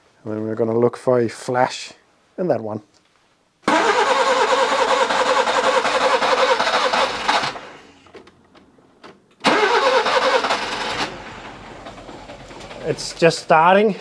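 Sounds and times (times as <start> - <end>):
car engine cranking: 3.7 - 8.7, 9.4 - 13.5
car engine running: 10.5 - 13.2.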